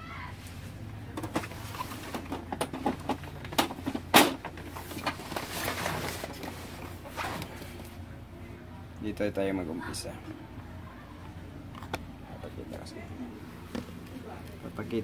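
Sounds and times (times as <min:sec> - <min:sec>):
plastic scraping: 0:01.2 - 0:07.7.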